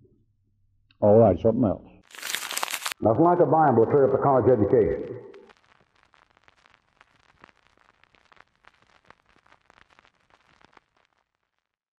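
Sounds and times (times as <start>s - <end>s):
faint crackles and clicks: 2.0s - 3.0s, 4.4s - 12.0s.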